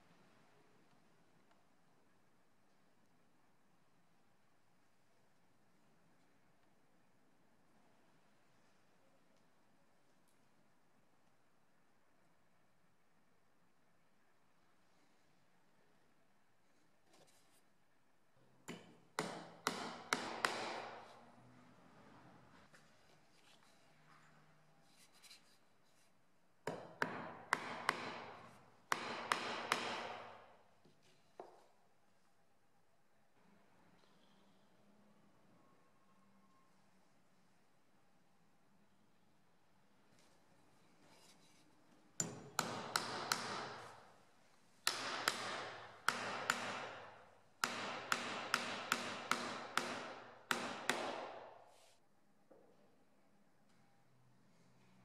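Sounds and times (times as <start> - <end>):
hammer tapping nails into wood: 18.7 - 21.0, 26.7 - 30.4, 42.2 - 43.9, 44.8 - 51.5.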